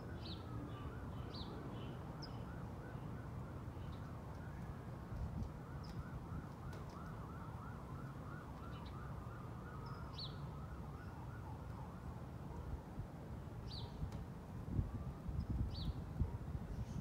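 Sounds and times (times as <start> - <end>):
emergency siren yelping: 2.4 - 12.4, 14.7 - 15.4.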